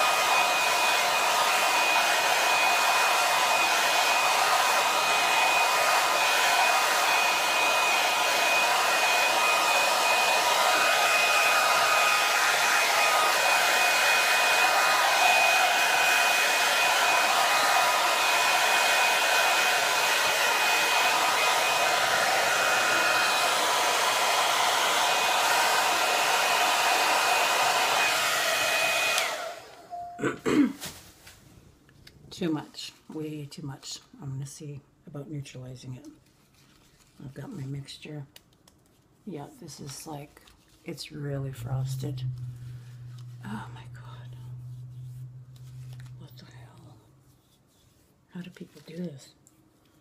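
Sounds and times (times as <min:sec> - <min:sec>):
hair dryer blowing: 0:00.0 - 0:30.1, 0:41.0 - 0:47.0.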